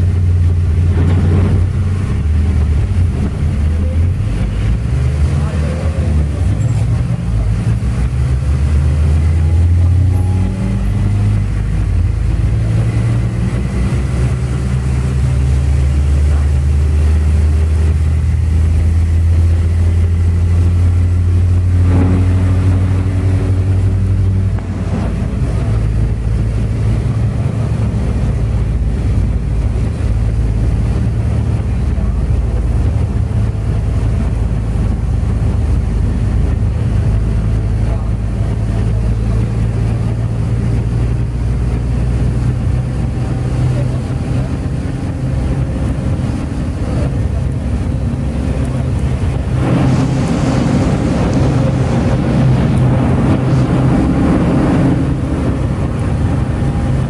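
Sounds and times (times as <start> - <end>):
bus engine hum: 0.0 - 57.0
road noise: 0.0 - 57.0.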